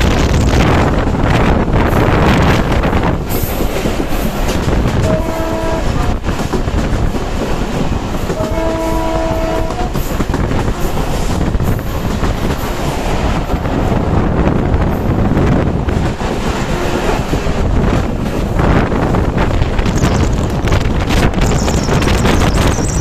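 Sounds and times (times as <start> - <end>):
wheels clattering on rails: 0.0 - 14.1, 14.8 - 23.0
wind rushing: 0.0 - 23.0
diesel locomotive horn: 4.8 - 6.3, 8.2 - 11.0.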